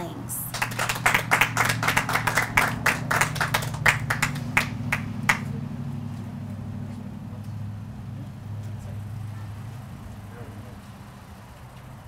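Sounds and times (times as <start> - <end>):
steady low hum: 0.0 - 12.0
small crowd clapping: 0.4 - 5.6.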